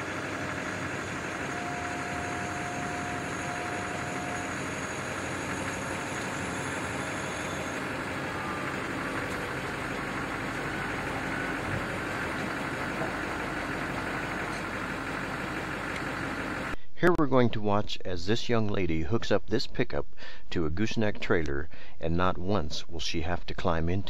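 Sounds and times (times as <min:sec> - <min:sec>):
pickup truck engine idling: 0:00.0 - 0:16.8.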